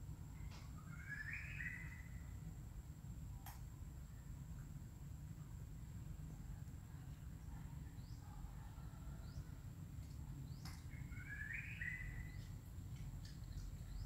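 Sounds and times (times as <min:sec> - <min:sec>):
high bird chirps: 0:00.8 - 0:02.3, 0:10.5 - 0:12.6
click: 0:03.4 - 0:03.6.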